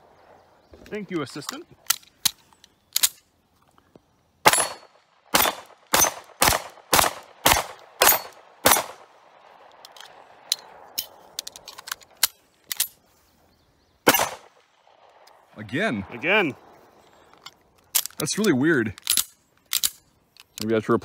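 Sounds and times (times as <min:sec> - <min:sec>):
pistol shots: 0:04.4 - 0:09.1, 0:14.0 - 0:15.3.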